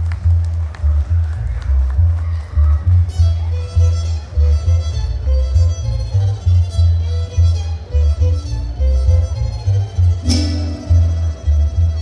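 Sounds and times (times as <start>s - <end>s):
deep pulsing bass: 0.0s - 12.0s
bowed violin melody: 3.1s - 12.0s
strummed guitars: 10.0s - 12.0s.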